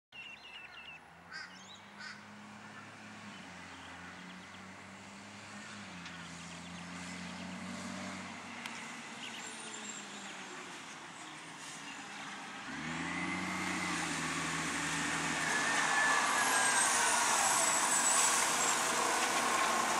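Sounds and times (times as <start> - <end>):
distant truck engine droning: 11.9 - 19.9.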